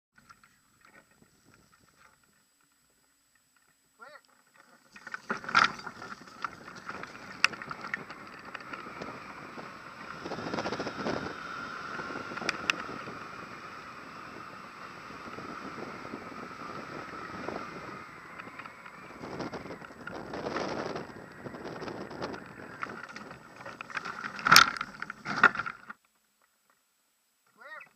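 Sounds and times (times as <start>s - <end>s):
airflow buffeting microphone: 4.9s - 25.9s.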